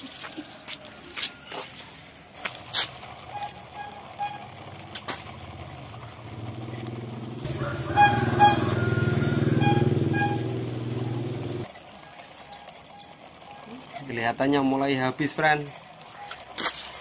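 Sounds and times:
engine running with low hum: 0:02.8 - 0:13.9.

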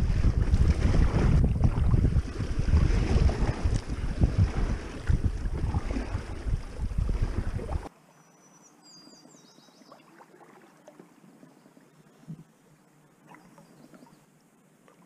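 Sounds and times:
wind buffeting microphone: 0:00.0 - 0:07.9
water rushing and splashing: 0:00.0 - 0:08.0
small bird singing: 0:08.2 - 0:09.9.

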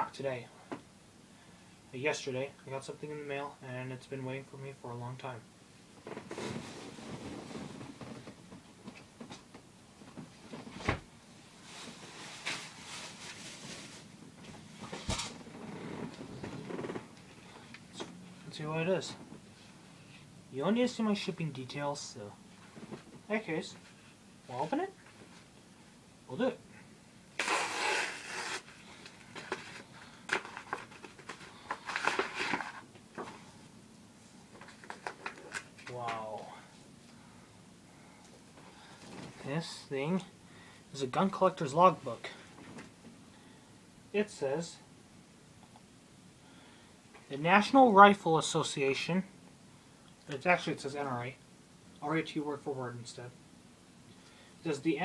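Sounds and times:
paper tearing: 0:27.4 - 0:28.8
paper envelope crackling: 0:28.2 - 0:32.9.

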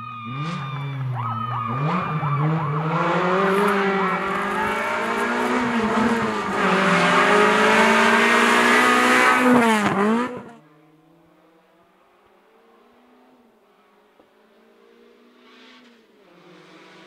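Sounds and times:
car engine accelerating hard: 0:00.0 - 0:10.6, 0:14.1 - 0:17.0.

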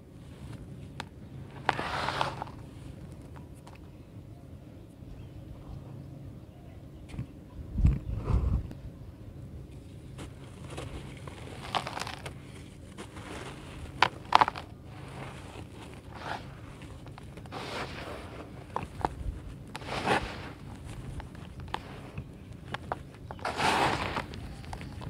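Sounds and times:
hands scooping dry dirt: 0:00.1 - 0:03.8, 0:10.1 - 0:25.0.

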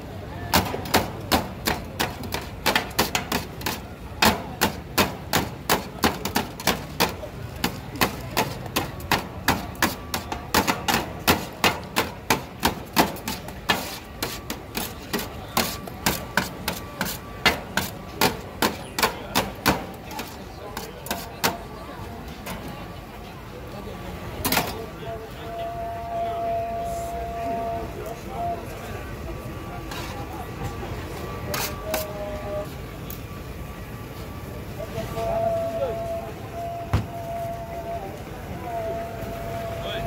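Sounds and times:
metal spatula chopping on pan: 0:00.5 - 0:21.6.

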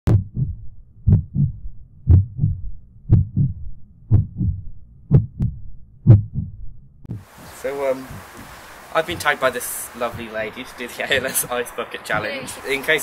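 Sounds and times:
heartbeat lub-dub: 0:00.1 - 0:11.5.

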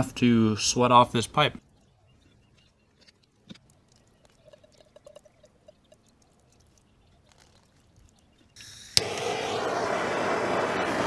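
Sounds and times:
propane torch hissing: 0:08.6 - 0:11.0.

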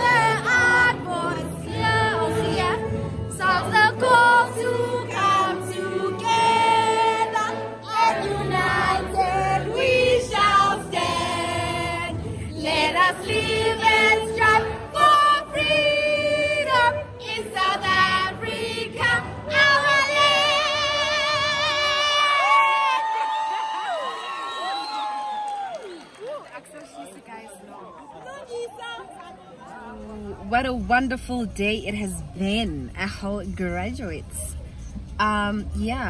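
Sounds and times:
crowd singing together: 0:00.0 - 0:22.5.

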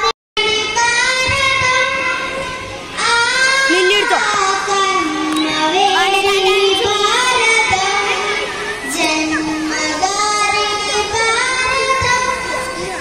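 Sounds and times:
girl singing into a microphone: 0:00.0 - 0:13.0.

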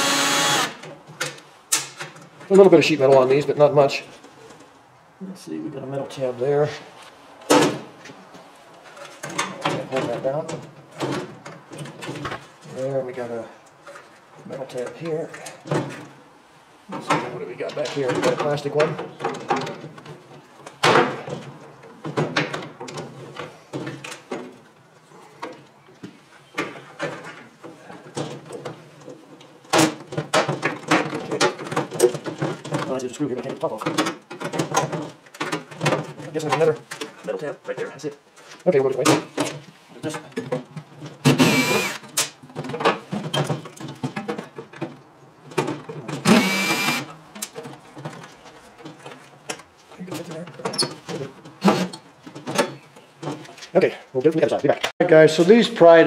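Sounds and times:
cordless drill whining: 0:00.0 - 0:00.8, 0:41.3 - 0:42.0, 0:46.2 - 0:47.1.

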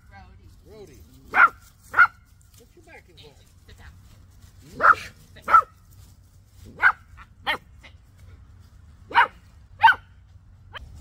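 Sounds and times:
dog barking: 0:01.3 - 0:02.2, 0:04.8 - 0:05.7, 0:06.8 - 0:07.7, 0:09.1 - 0:10.1.

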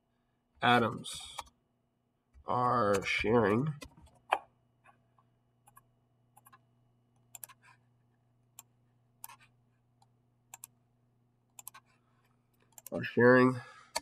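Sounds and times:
computer mouse clicks: 0:05.7 - 0:06.6, 0:07.2 - 0:07.8, 0:08.6 - 0:10.8, 0:11.5 - 0:12.0, 0:12.6 - 0:13.0.

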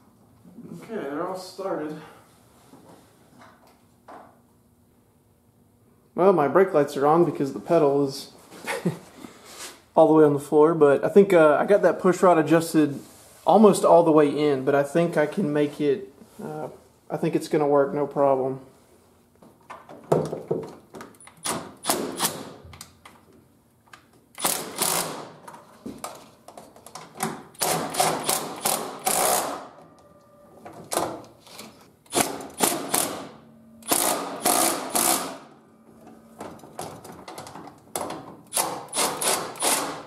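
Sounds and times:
impact driver rapid clicks: 0:21.4 - 0:22.5, 0:24.4 - 0:25.3, 0:27.5 - 0:29.6, 0:32.1 - 0:35.4, 0:38.5 - 0:40.0.

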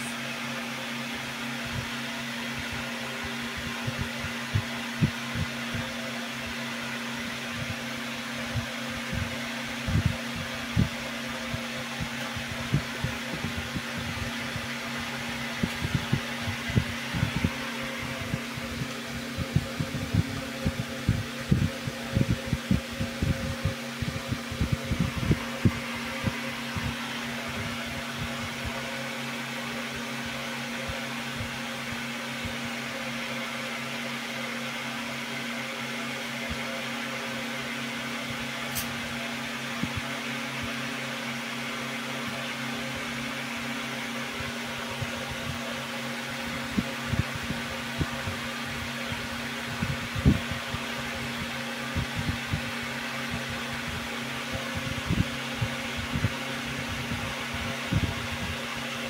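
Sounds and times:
steady mechanical hum: 0:00.0 - 0:59.0
sharp click: 0:38.7 - 0:39.0.

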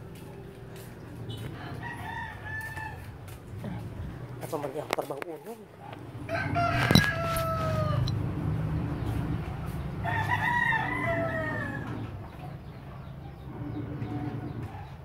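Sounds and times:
rooster crowing: 0:01.3 - 0:03.3, 0:06.2 - 0:08.3, 0:10.0 - 0:12.2.

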